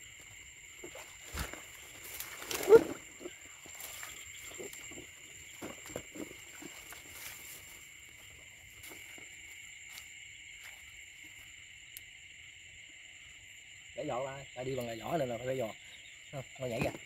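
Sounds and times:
footsteps through wet grass: 0:00.0 - 0:11.5
insects and frogs chorus: 0:00.0 - 0:17.0.

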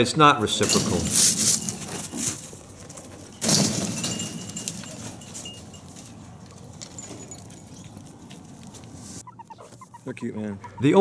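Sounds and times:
jangling rattle: 0:00.5 - 0:08.4
meerkats peeping: 0:09.0 - 0:11.0.

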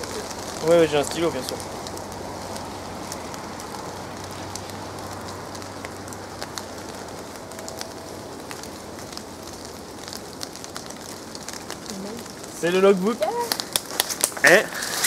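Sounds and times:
water dripping: 0:00.0 - 0:14.6
rain falling: 0:00.0 - 0:15.0.

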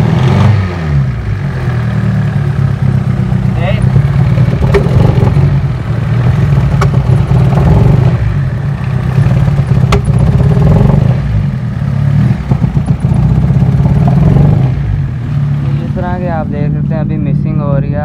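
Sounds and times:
car engine idling roughly: 0:01.4 - 0:14.4.

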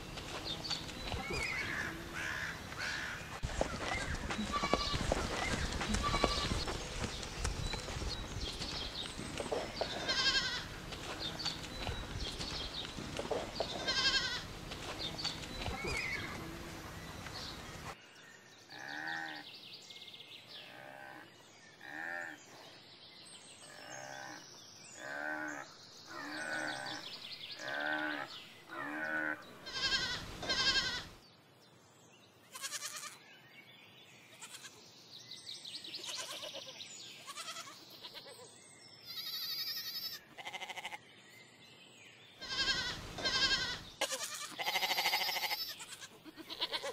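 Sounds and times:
goats bleating: 0:01.1 - 0:06.7, 0:09.8 - 0:11.9, 0:13.7 - 0:14.5, 0:28.9 - 0:31.1, 0:32.5 - 0:33.2, 0:36.0 - 0:38.4, 0:39.1 - 0:41.0, 0:42.4 - 0:46.9.

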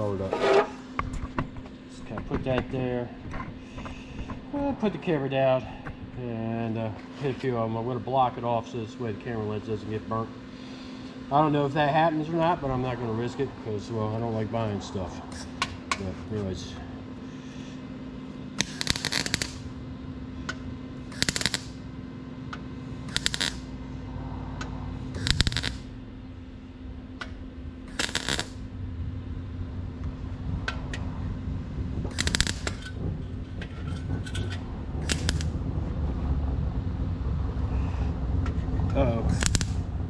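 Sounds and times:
steady low hum: 0:00.0 - 0:40.0
welder crackling bursts: 0:18.5 - 0:19.8, 0:21.0 - 0:21.9, 0:22.9 - 0:23.8, 0:25.0 - 0:26.0, 0:27.2 - 0:28.7, 0:32.0 - 0:33.4, 0:35.0 - 0:35.6, 0:39.2 - 0:40.0.

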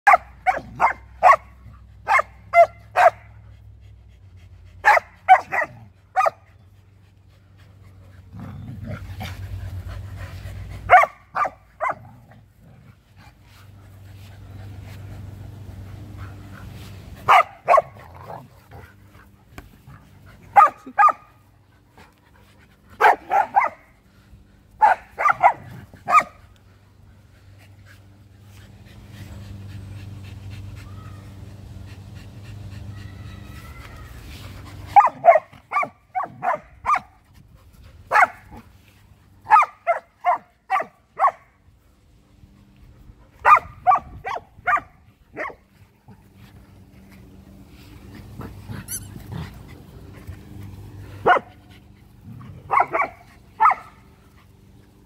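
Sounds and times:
dogs barking: 0:00.0 - 0:03.3, 0:04.8 - 0:06.5, 0:10.9 - 0:12.1, 0:17.3 - 0:18.4, 0:20.5 - 0:21.3, 0:23.0 - 0:23.9, 0:24.8 - 0:26.4, 0:34.9 - 0:37.2, 0:38.1 - 0:38.6, 0:39.5 - 0:41.5, 0:43.4 - 0:45.6, 0:51.2 - 0:51.6, 0:52.6 - 0:54.1.

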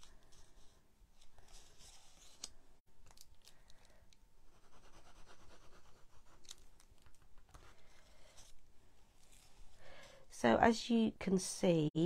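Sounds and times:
paper rustling and scraping: 0:00.0 - 0:03.2.

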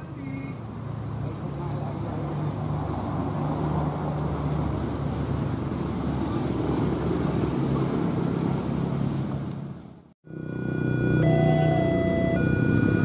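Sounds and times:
diesel locomotive engine drone: 0:10.2 - 0:13.0.

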